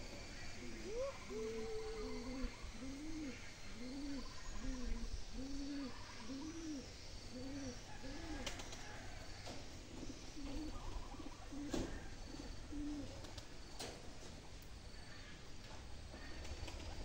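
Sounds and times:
bird hooting: 0.0s - 13.1s.

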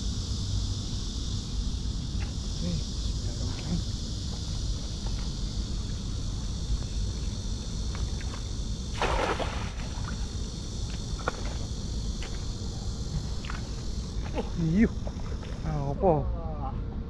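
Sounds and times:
high drone of insects: 0.0s - 17.0s
water sloshing and splashing: 9.0s - 10.2s.

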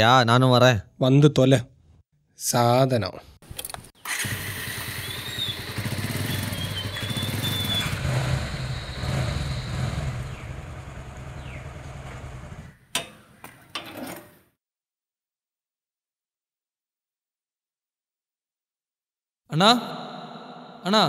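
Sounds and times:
motorcycle engine running: 4.1s - 12.8s.

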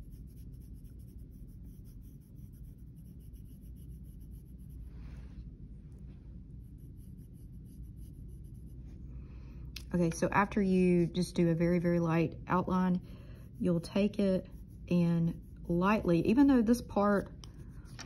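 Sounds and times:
pencil scratching on paper: 0.0s - 4.9s, 6.6s - 8.9s, 13.3s - 18.0s.

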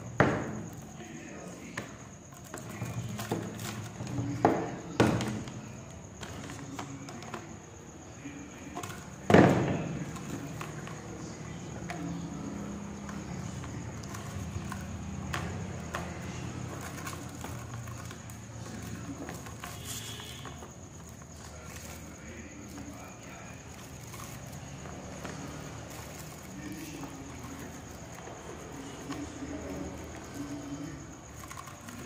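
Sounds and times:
objects knocking on wooden table: 0.1s - 0.8s, 2.6s - 5.6s, 8.8s - 11.0s.

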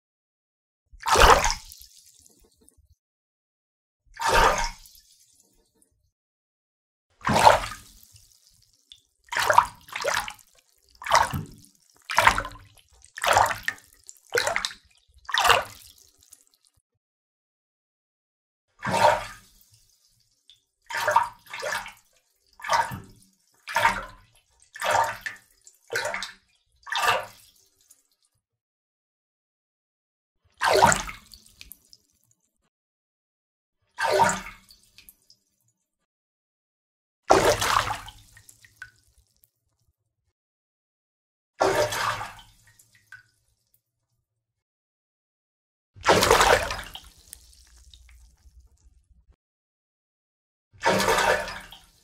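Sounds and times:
water splashes: 1.0s - 2.4s, 7.2s - 8.6s, 9.3s - 16.6s, 37.3s - 39.0s, 46.0s - 49.0s, 50.9s - 52.0s.

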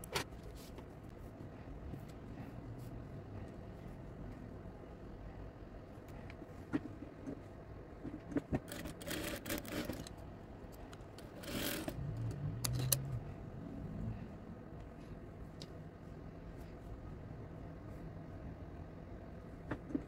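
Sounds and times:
low hum: 11.8s - 19.6s.

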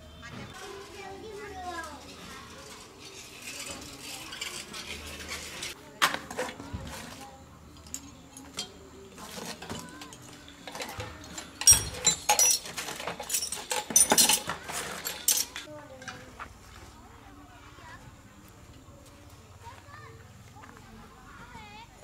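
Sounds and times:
small hard objects clinking: 0.5s - 15.7s.

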